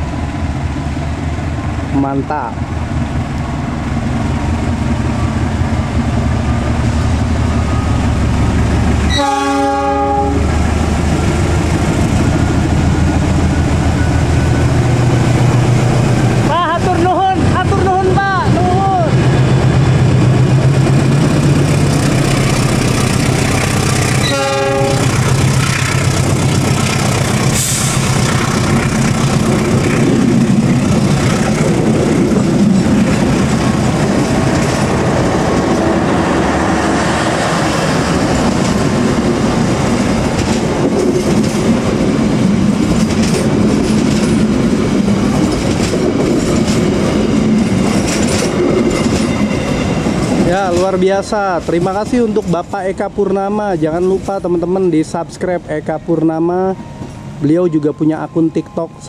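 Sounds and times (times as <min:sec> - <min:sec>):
diesel locomotive engine drone: 0:00.0 - 0:59.0
train horn blast: 0:09.1 - 0:10.6, 0:24.1 - 0:25.3
wheels clacking over rail joints: 0:19.1 - 0:53.0.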